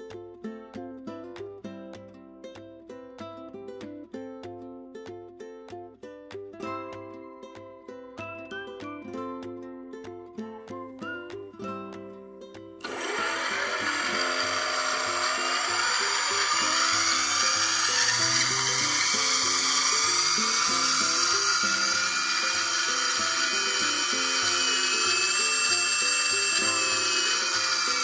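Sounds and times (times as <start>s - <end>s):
electric motor whirring: 12.8s - 28.0s.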